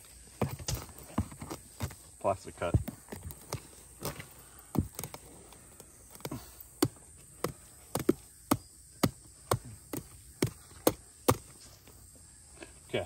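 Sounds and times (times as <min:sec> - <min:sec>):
tool chopping bamboo root: 0:02.6 - 0:11.6.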